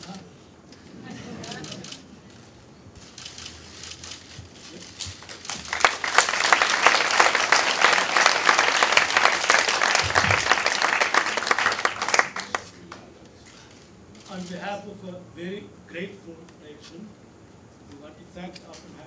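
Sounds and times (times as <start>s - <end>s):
audience applauding: 5.1s - 13.1s.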